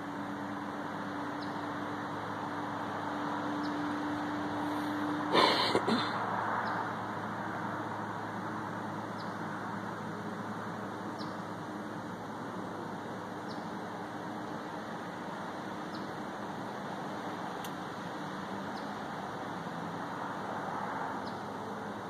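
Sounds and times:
distant engine-like rumble: 0.0 - 22.0
bird chirping: 1.4 - 1.6, 11.1 - 11.5, 13.4 - 13.8, 15.8 - 16.2, 21.2 - 21.5.

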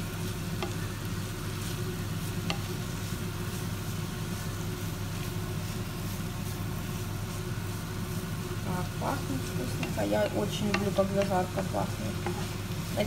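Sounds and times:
steady low hum: 0.0 - 13.0
vegetables sizzling in hot oil: 0.0 - 13.0
wooden spatula scraping pan: 9.2 - 13.0.

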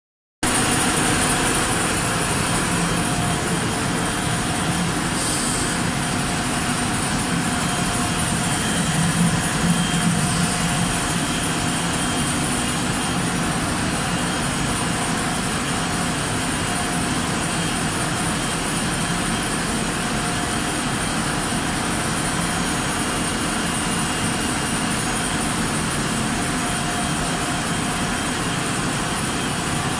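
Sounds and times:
machinery rushing drone: 0.5 - 17.2.

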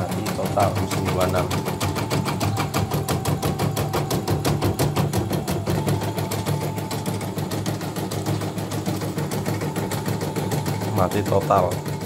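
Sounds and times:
embroidery machine stitching: 0.0 - 12.0.

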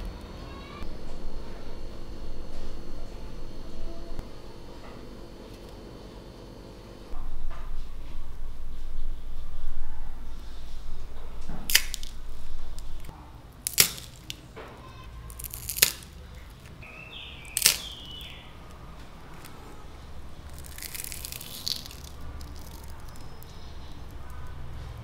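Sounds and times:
low rumble: 7.1 - 13.1
fried potato balls crackling: 11.6 - 25.0.

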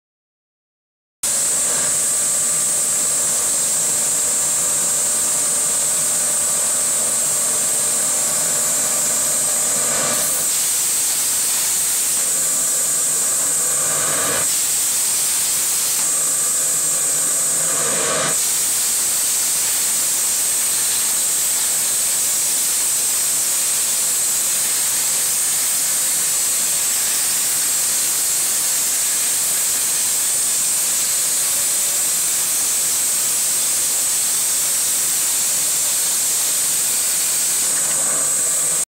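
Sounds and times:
plasma cutter hissing: 1.2 - 38.9
humming drone: 1.3 - 18.4, 37.5 - 38.9.

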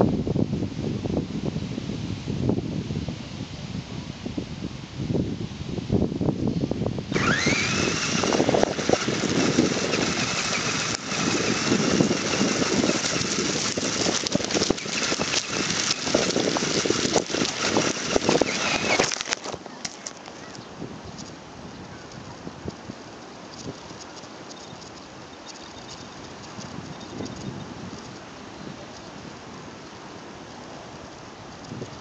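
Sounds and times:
toy motor and gears whining: 7.1 - 20.6, 23.5 - 28.2
tyres crunching over gravel: 7.2 - 21.4.

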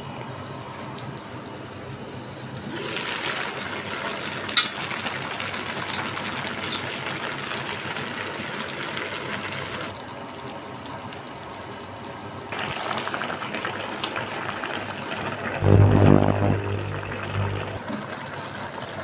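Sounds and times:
food sizzling in a wok: 2.6 - 9.9.

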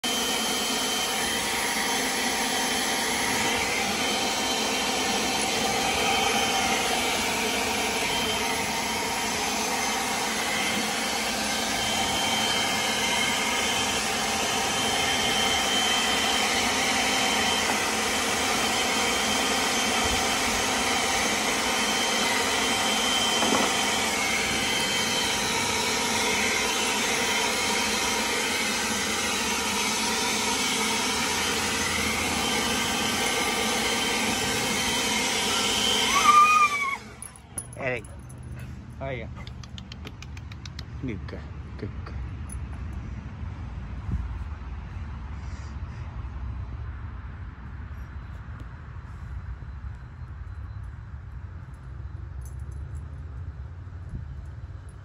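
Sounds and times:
leaf blower running: 0.0 - 43.1.

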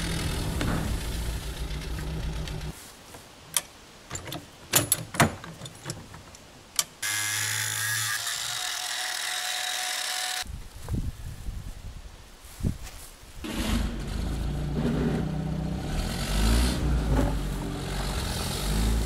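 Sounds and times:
engine idling: 0.0 - 2.7
low hum: 0.0 - 2.7.

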